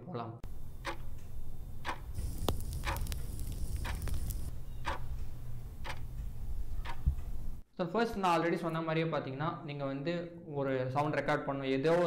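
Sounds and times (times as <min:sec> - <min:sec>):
clock ticking: 0:00.4 - 0:02.2, 0:03.8 - 0:07.3
clicks: 0:00.7 - 0:07.6
hiss: 0:01.8 - 0:04.5.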